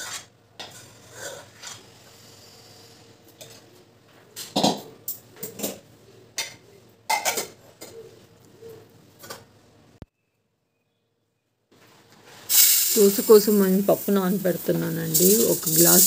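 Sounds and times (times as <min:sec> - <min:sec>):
spoon scraping and knocking pan: 0:00.0 - 0:01.9.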